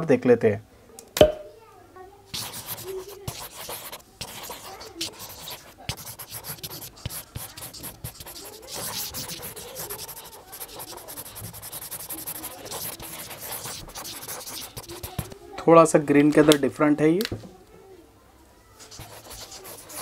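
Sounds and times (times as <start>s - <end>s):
marker scratching on paper: 2.3s - 15.4s, 18.8s - 20.0s.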